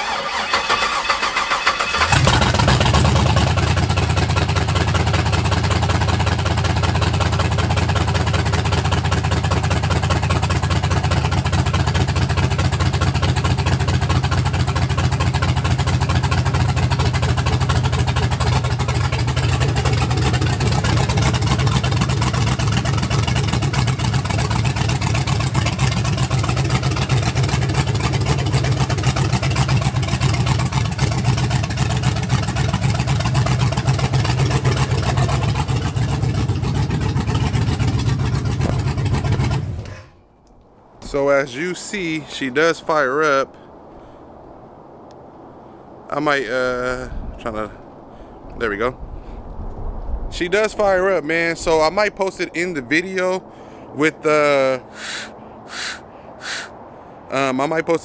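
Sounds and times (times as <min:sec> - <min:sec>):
car engine cranking and idling: 0:00.0 - 0:41.6.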